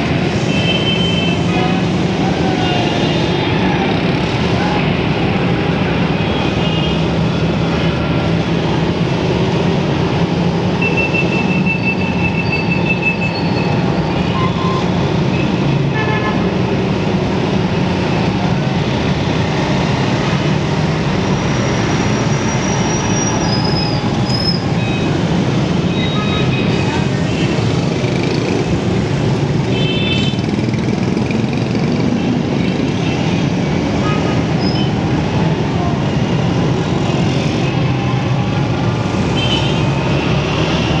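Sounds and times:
road noise: 0:00.0 - 0:41.0
vehicle horns: 0:10.8 - 0:16.5, 0:29.7 - 0:30.4, 0:39.3 - 0:40.0.

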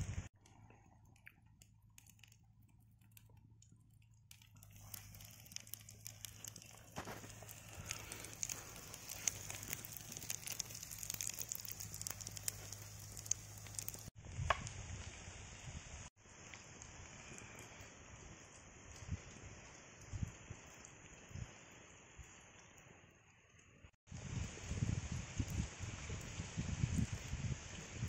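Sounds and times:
food sizzling in oil: 0:04.7 - 0:14.1.

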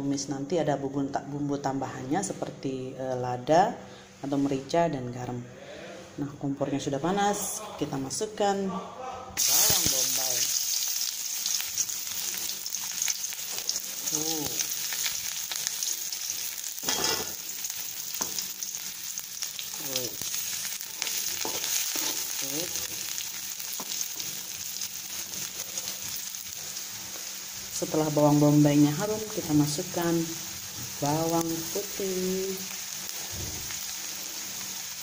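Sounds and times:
onion sizzling in hot oil: 0:09.4 - 0:35.0
metal spatula scraping a wok: 0:16.8 - 0:17.4, 0:21.0 - 0:22.4.

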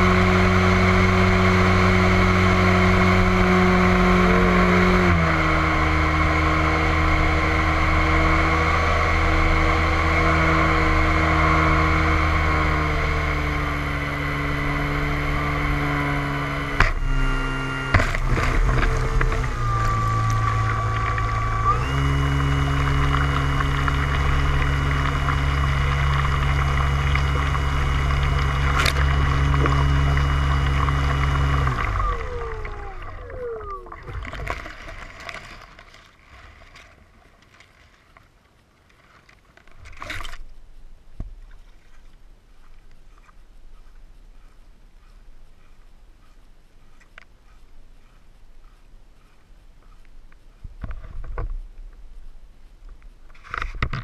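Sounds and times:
model plane motor running: 0:00.0 - 0:34.4
faint small noises: 0:16.4 - 0:54.0.

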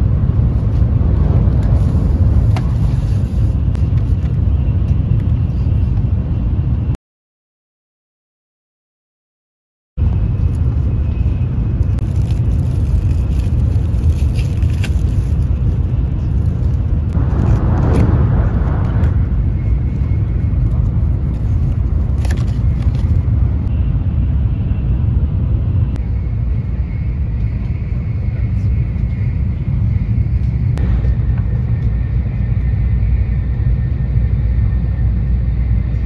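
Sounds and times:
train cabin rumble: 0:00.0 - 0:06.9, 0:10.0 - 0:36.0.

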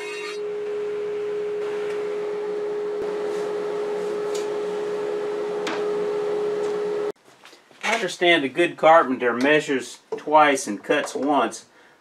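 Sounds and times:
table saw motor whining: 0:00.0 - 0:00.6.

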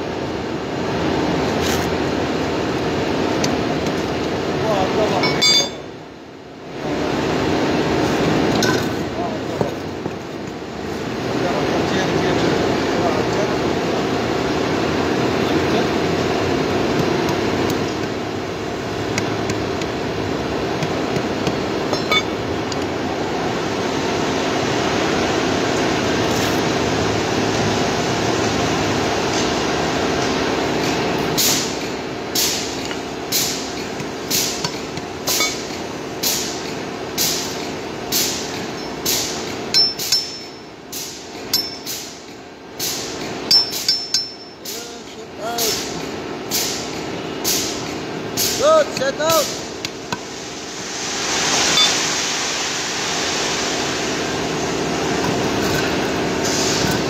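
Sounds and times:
machinery hum: 0:00.0 - 0:57.0.

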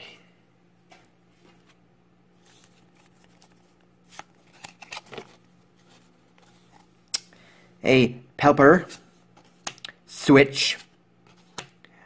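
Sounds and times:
trading cards rustling and flicking: 0:00.8 - 0:07.1, 0:10.6 - 0:11.8.

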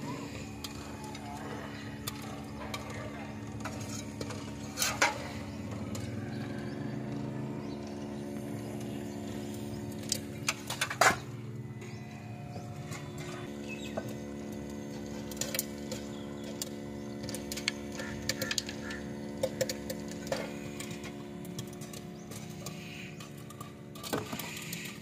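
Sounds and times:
popcorn machine hum: 0:00.0 - 0:25.0
popcorn popping: 0:00.0 - 0:25.0.

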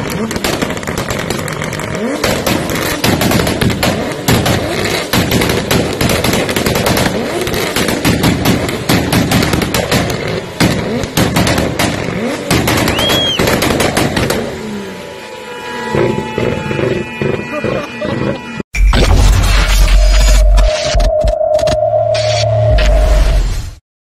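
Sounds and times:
car exhaust popping and banging: 0:00.0 - 0:14.7
car engine revving: 0:00.0 - 0:15.2, 0:15.8 - 0:18.6.

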